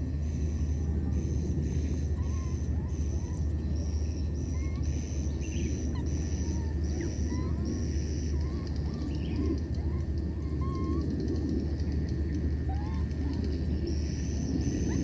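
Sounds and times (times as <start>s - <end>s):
faint squeaky calls: 0.2s - 11.4s.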